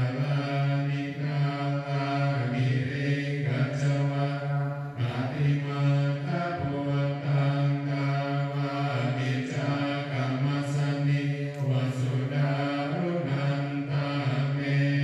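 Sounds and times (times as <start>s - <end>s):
low voices chanting: 0.0s - 15.0s.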